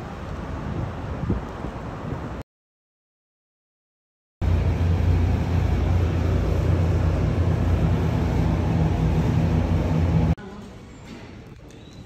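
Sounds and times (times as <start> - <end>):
low mechanical hum: 4.4 - 11.4.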